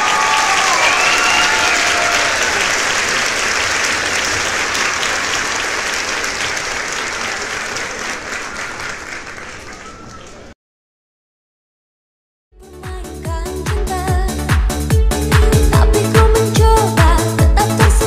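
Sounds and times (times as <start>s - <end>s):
crowd applause: 0.0s - 10.6s.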